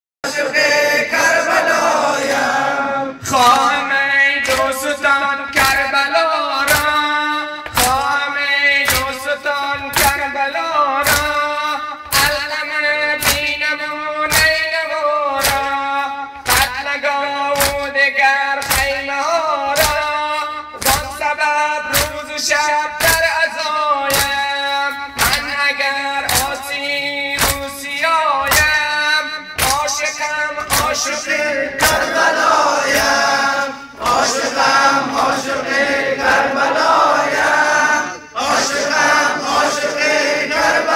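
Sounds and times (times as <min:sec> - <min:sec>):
man singing into microphone: 0:02.9 - 0:32.0
chest beating slaps: 0:06.6 - 0:10.3, 0:11.0 - 0:12.6, 0:13.2 - 0:13.7, 0:14.3 - 0:14.6, 0:15.4 - 0:16.8, 0:17.6 - 0:17.9, 0:18.6 - 0:19.0, 0:20.8 - 0:21.2, 0:21.9 - 0:22.3, 0:24.1 - 0:24.5, 0:25.1 - 0:27.8, 0:28.4 - 0:28.8, 0:29.6 - 0:32.2.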